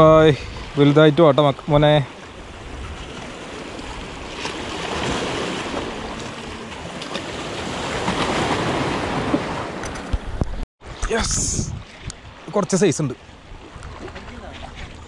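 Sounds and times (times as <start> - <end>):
waves washing and surging: 0.0 - 15.0
wind on microphone: 1.7 - 12.4.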